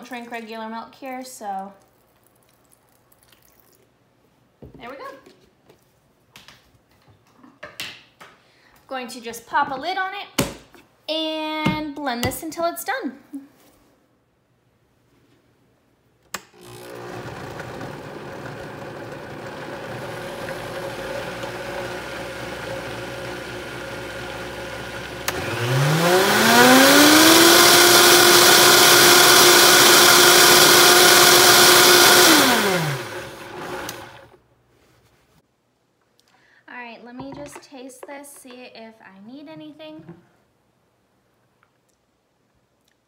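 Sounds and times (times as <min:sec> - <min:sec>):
blender motor whining: 0:16.5 - 0:34.3.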